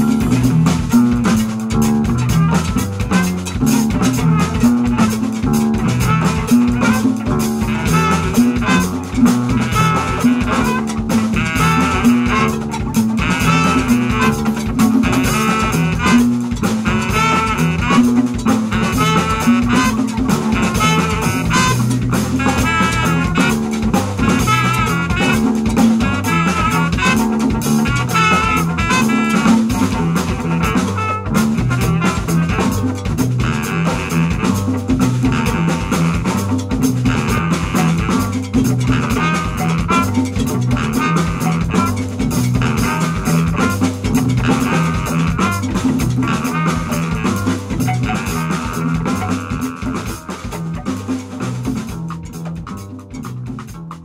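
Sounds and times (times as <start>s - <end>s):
baritone saxophone: 0.0s - 53.7s
congas: 0.0s - 54.0s
jazz band playing: 0.0s - 54.0s
trumpet: 0.0s - 54.0s
upright bass line: 0.0s - 54.0s.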